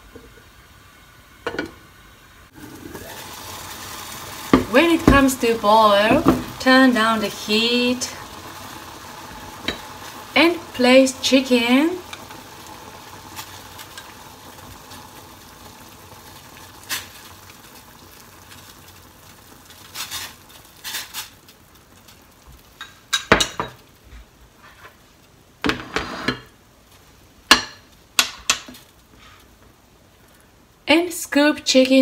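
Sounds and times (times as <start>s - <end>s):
gas hob hiss: 0.0s - 31.5s
utensils clinking on pots: 22.8s - 23.8s.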